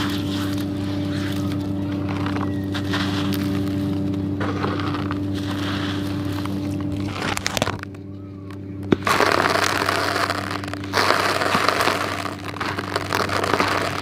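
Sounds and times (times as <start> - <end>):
cement chunks crumbling by hand: 0.0 - 14.0
sharp crack: 8.8 - 14.0.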